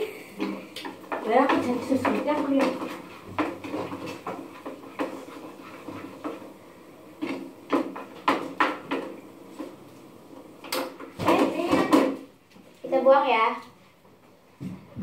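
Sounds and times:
utensil scraping noodles in pan: 0.3s - 10.4s
utensil knocking against pan: 0.4s - 6.5s, 7.2s - 9.2s.

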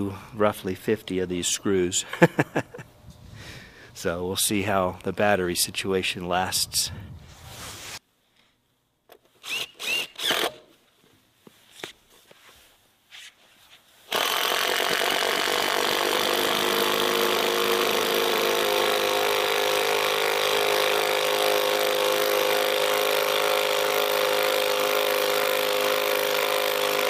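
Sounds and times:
impact driver hammering screw: 14.1s - 27.0s.

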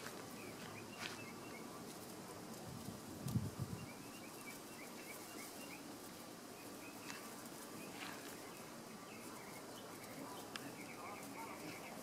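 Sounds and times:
small bird chirping: 0.0s - 1.8s, 3.6s - 12.0s
soft ticks: 10.5s - 10.7s.

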